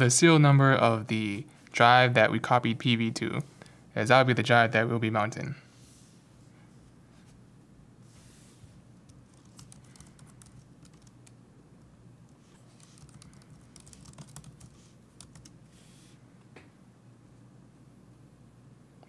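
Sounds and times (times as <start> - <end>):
low steady hum: 0.0 - 19.0
computer keyboard typing: 9.1 - 11.4, 12.7 - 15.6.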